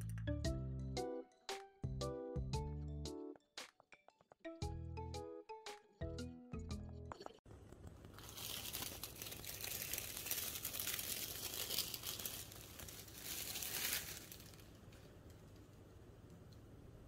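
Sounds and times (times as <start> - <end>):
background music: 0.0 - 7.2
plastic wrap crinkling: 7.5 - 15.7.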